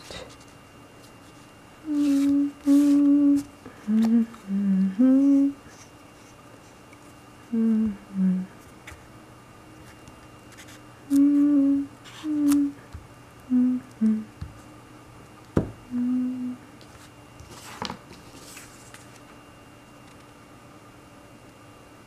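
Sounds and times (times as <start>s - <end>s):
person humming: 1.8s - 5.8s, 7.4s - 8.6s, 11.0s - 14.5s, 15.8s - 16.7s.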